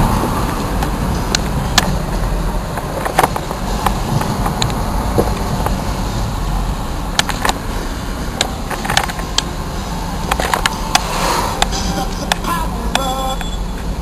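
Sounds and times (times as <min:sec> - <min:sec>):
engine and road rumble in car cabin: 0:00.0 - 0:14.0
sharp clicks and knocks: 0:00.5 - 0:05.8, 0:07.1 - 0:07.6, 0:08.4 - 0:09.5, 0:10.2 - 0:13.1.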